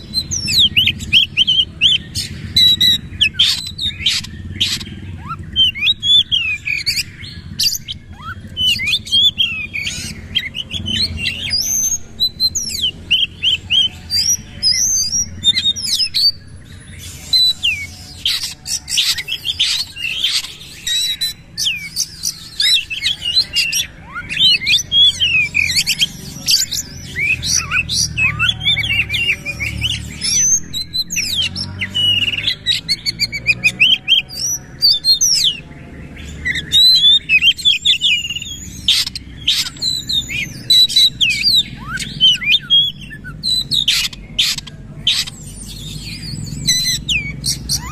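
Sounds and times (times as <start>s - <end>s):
bird singing varied song: 0.0s - 47.9s.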